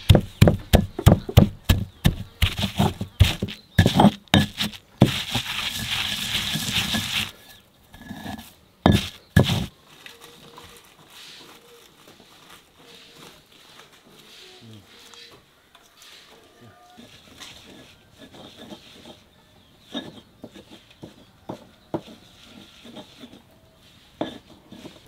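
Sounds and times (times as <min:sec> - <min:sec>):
pestle pounding in stone mortar: 0:00.0 - 0:07.3, 0:08.9 - 0:09.7
pestle grinding gritty scraping: 0:00.0 - 0:09.7, 0:17.0 - 0:21.3, 0:21.9 - 0:25.0.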